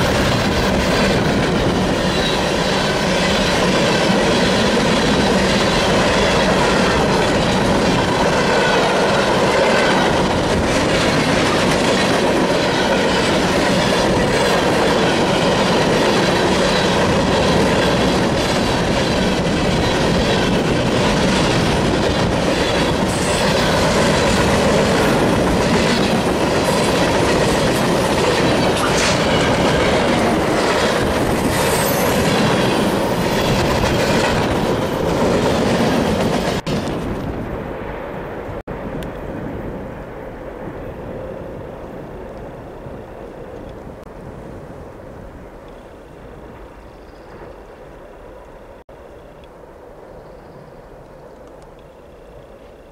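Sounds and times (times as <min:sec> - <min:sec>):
click-clack over rail joints: 0:00.0 - 0:37.5
train wheels rumbling on rails: 0:00.0 - 0:52.9.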